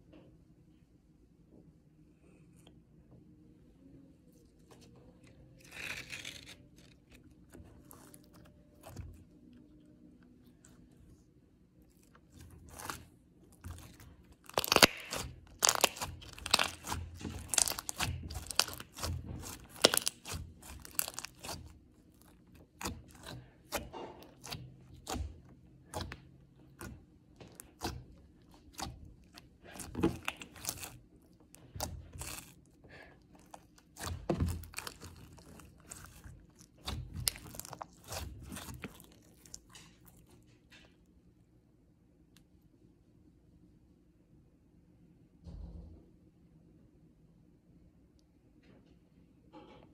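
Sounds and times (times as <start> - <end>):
slime crackling pops and clicks: 14.4 - 21.6.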